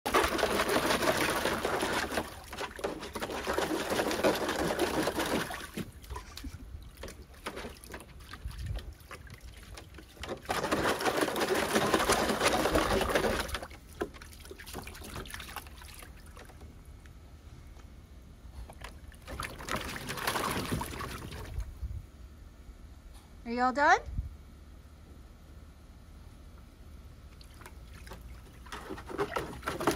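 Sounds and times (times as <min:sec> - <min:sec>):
dog splashing water: 0:00.0 - 0:16.6, 0:18.7 - 0:21.6, 0:27.3 - 0:29.9
water dripping and sloshing: 0:00.1 - 0:16.8, 0:18.7 - 0:21.7, 0:27.3 - 0:29.9.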